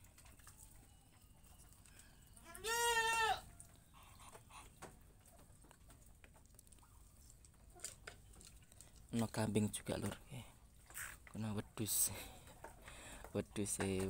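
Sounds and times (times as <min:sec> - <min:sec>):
goat bleating: 0:02.4 - 0:03.5.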